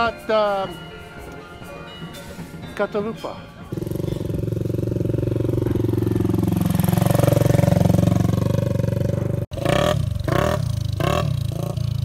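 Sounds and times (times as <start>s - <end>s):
small motorbike engine running: 3.7s - 12.0s.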